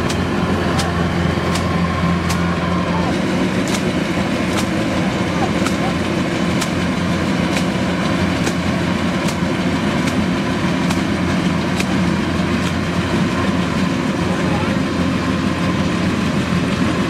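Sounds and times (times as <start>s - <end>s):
sharp repeating tick: 0.0s - 2.6s, 3.5s - 5.0s, 5.6s - 12.9s
combine harvester engine drone: 0.0s - 17.0s.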